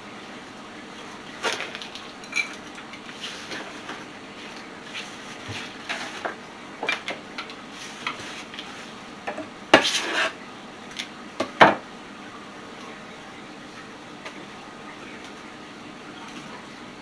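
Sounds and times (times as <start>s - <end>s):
dishes and utensils clinking: 1.4s - 2.7s.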